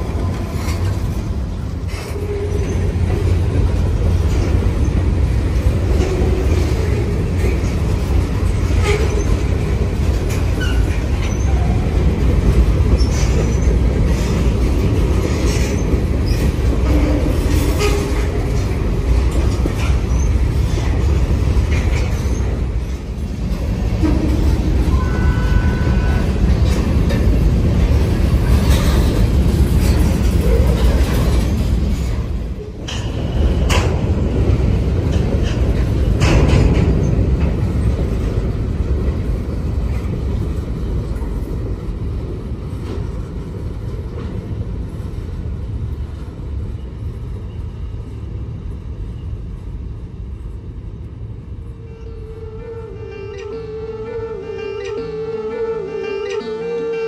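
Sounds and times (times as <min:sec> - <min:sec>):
train wheels rumbling on rail: 0:00.0 - 0:57.0
clicks and clanks: 0:32.8 - 0:34.1.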